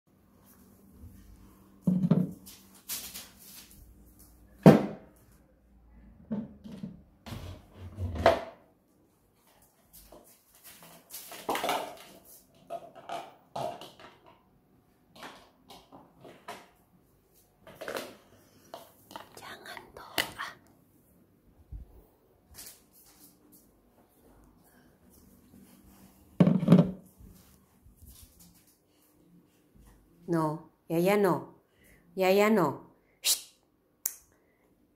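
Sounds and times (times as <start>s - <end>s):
puppy knocking and scuffing on tiles: 1.8s - 3.3s, 26.4s - 27.4s.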